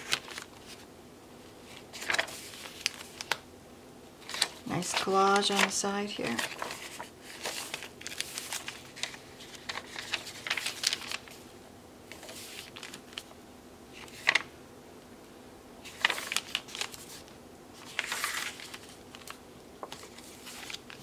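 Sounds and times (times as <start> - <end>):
pages slapping down: 0.0 - 0.8, 1.7 - 3.4, 4.2 - 11.4, 12.1 - 13.3, 14.0 - 14.5, 15.9 - 21.0
paper pages rustling: 0.0 - 0.9, 1.6 - 3.4, 4.2 - 11.4, 12.1 - 14.5, 15.8 - 21.0.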